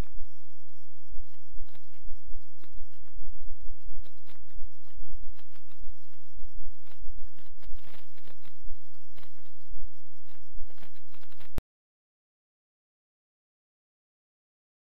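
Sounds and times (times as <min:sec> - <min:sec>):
low hum: 0:00.0 - 0:11.6
clicks and crackles: 0:01.2 - 0:11.6.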